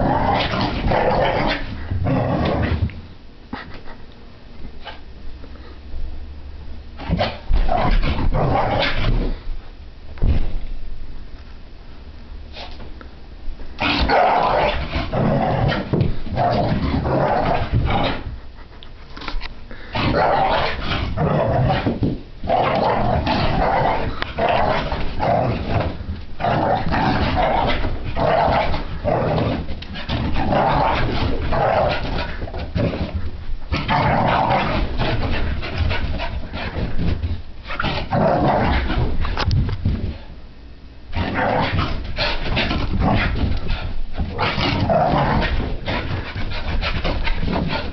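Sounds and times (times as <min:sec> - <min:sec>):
puppy barking and growling: 0:13.8 - 0:18.2, 0:22.5 - 0:32.4, 0:33.7 - 0:36.0.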